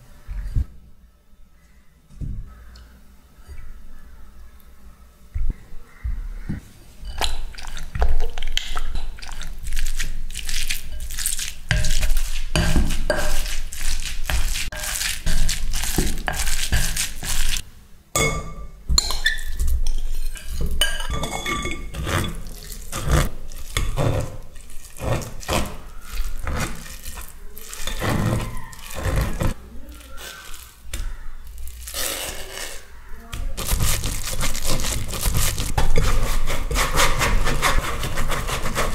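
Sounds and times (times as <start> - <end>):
metal spoon scraping wire sieve: 8.9 - 17.6, 19.0 - 30.8, 33.6 - 38.9.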